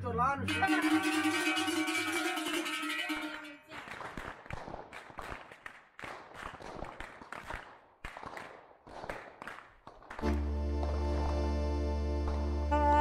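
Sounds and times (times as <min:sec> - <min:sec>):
music: 0:00.4 - 0:03.1, 0:10.2 - 0:13.0.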